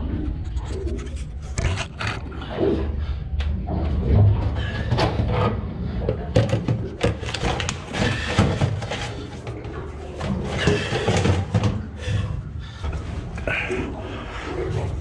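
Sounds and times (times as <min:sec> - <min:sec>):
low steady rumble: 0:00.0 - 0:07.0
hands knocking and scraping filter: 0:04.9 - 0:12.3.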